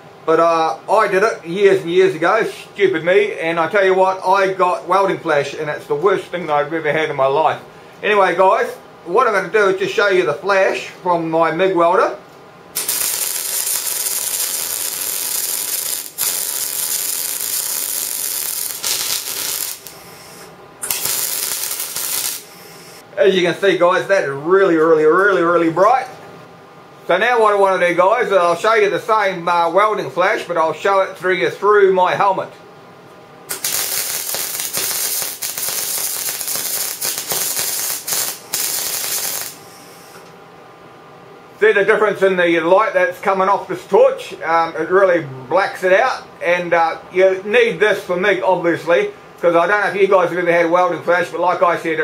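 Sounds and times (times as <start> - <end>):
welder arc crackling: 12.8 - 23.0, 33.5 - 40.2.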